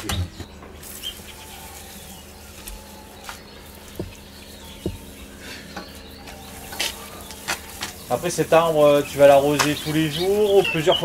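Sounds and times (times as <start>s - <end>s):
garden hose spraying: 0.6s - 11.0s
water pattering on gravel: 0.7s - 11.0s
short knocks: 3.9s - 5.2s.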